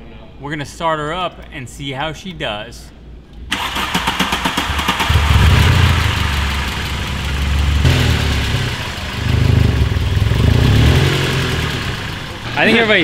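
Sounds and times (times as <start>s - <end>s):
car engine starting and idling: 3.5s - 13.0s.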